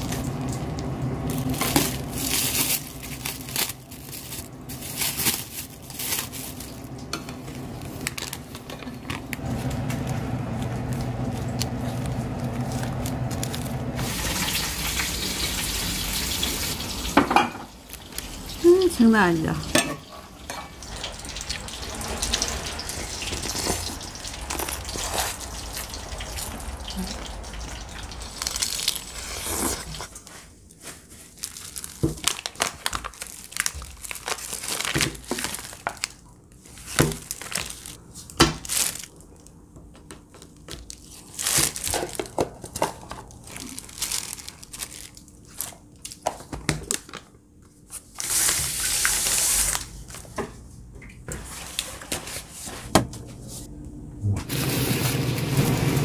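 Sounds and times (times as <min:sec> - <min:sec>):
paper wrapper crinkling: 0:00.0 - 0:15.0, 0:21.3 - 0:50.4.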